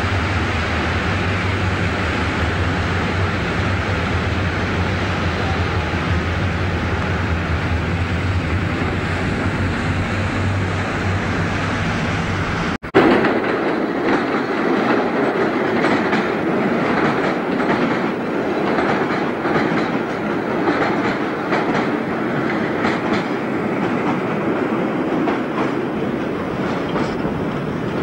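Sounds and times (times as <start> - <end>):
wheels clicking over rail joints: 13.0 - 28.0.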